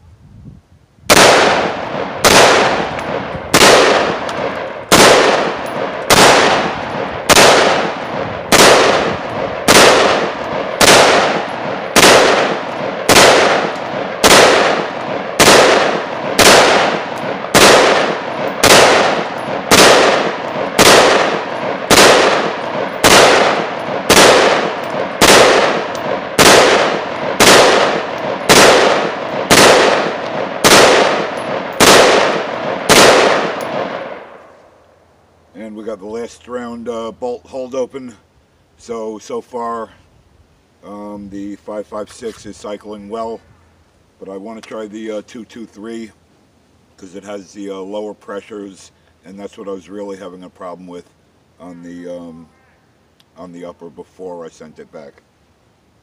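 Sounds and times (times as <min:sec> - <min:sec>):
pistol shots with echo: 0:01.1 - 0:34.5.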